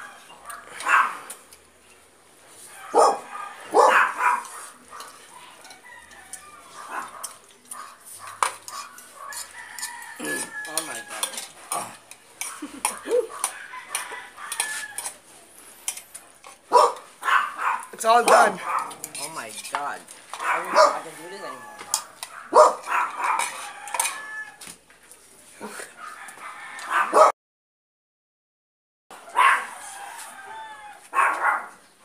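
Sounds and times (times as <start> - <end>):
forks clinking on plates: 4.2 - 15.2, 15.8 - 17.1, 18.0 - 24.6.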